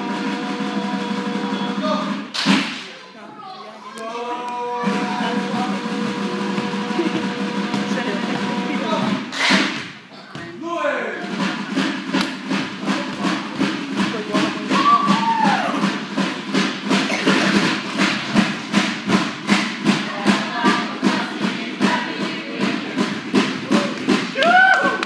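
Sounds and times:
group of voices singing: 0:00.0 - 0:02.2, 0:03.8 - 0:09.3, 0:19.8 - 0:24.2
fast beat of sharp strikes: 0:00.0 - 0:03.0, 0:04.6 - 0:25.0.

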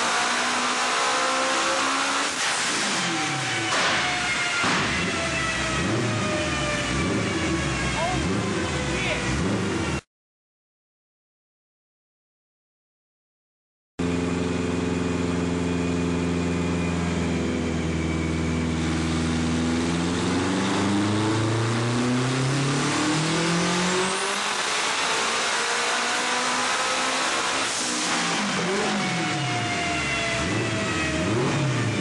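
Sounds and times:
turbocharged car engine revving: 0:00.0 - 0:10.0, 0:14.0 - 0:32.0.

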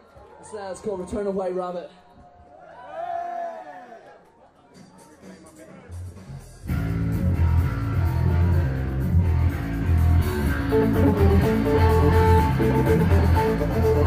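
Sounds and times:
drums: 0:04.6 - 0:14.0
electric guitar: 0:06.6 - 0:14.0.

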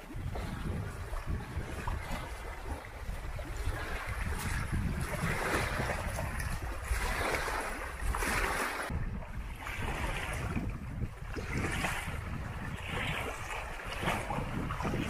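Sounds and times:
waves lapping on sandy shore: 0:00.0 - 0:15.0
wind rumble on microphone: 0:00.0 - 0:15.0.

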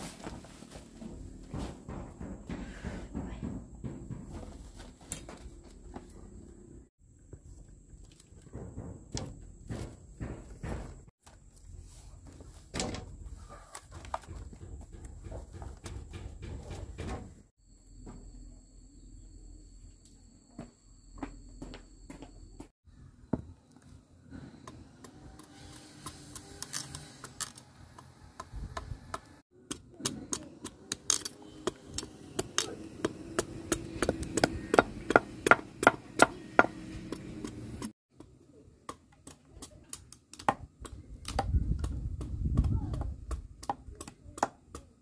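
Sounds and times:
cleaver chopping on wooden block: 0:32.4 - 0:37.6.

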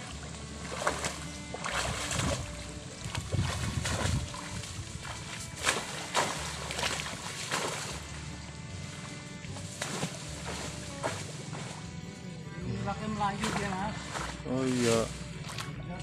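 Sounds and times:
water sloshing and splashing: 0:00.0 - 0:12.2, 0:12.8 - 0:16.0
wind rumble on microphone: 0:00.1 - 0:08.5.

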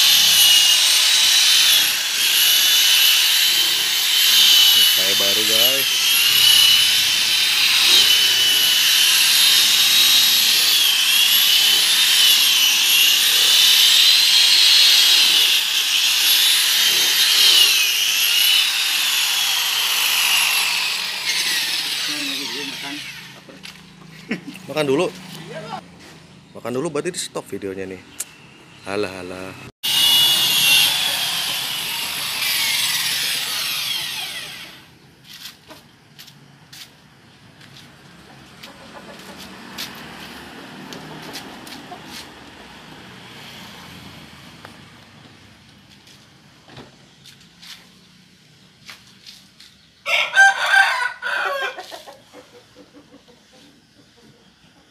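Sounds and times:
car polisher motor whine: 0:29.9 - 0:34.9.

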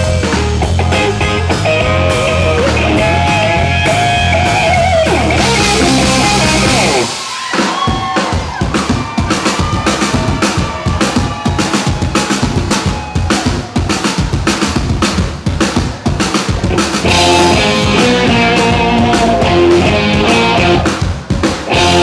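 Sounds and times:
electric guitar lead: 0:00.0 - 0:07.2, 0:16.7 - 0:21.0, 0:21.6 - 0:22.0
live rock band playing: 0:00.0 - 0:22.0.

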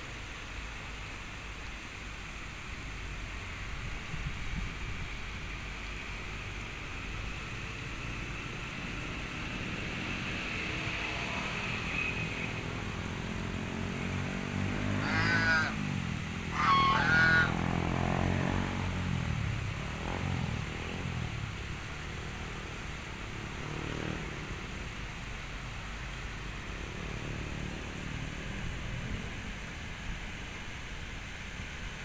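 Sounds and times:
ducks quacking: 0:15.0 - 0:15.8, 0:16.5 - 0:17.6.

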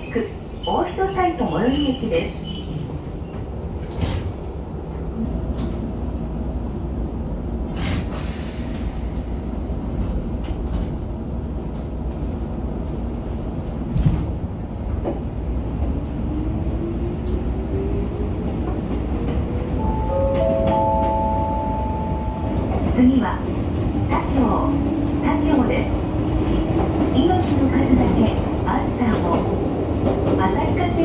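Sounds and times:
train running gear rumble: 0:00.0 - 0:31.0.

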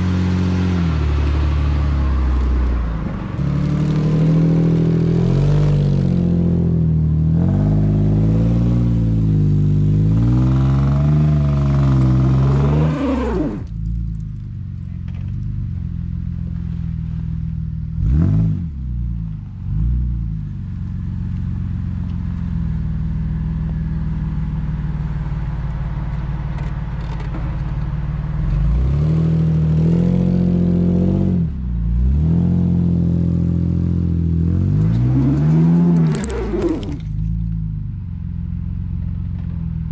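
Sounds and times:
pickup engine revving: 0:00.0 - 0:13.7, 0:28.4 - 0:37.3.

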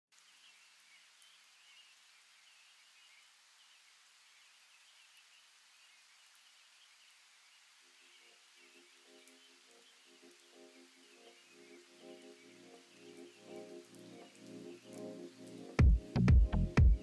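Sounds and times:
faint steady hiss: 0:00.1 - 0:17.0
quiet music: 0:08.1 - 0:17.0.

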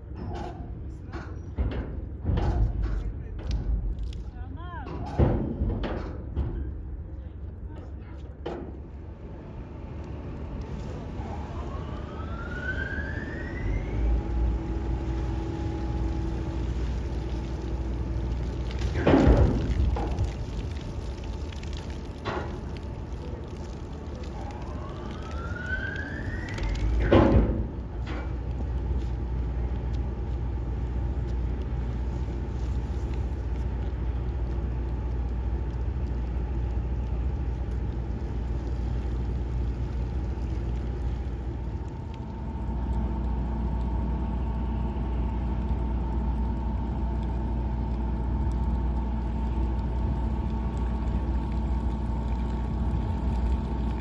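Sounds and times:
ship engines low rumble: 0:00.0 - 0:54.0
steady hum with tones: 0:05.6 - 0:54.0
rising whine: 0:09.1 - 0:18.5, 0:20.3 - 0:28.0.

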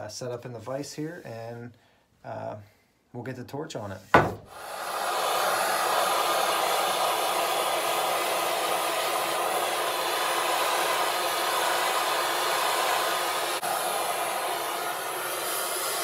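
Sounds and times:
gas torch hissing: 0:04.2 - 0:16.0.

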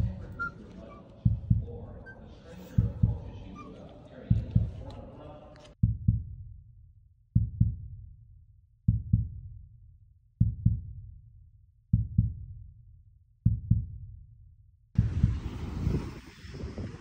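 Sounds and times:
deep double thumps: 0:01.2 - 0:01.9, 0:02.8 - 0:03.3.

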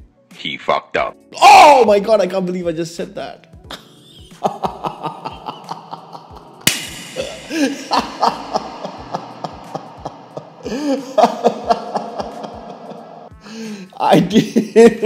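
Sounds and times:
man laughing: 0:03.7 - 0:15.0
steady beat of clicks: 0:06.6 - 0:07.5.

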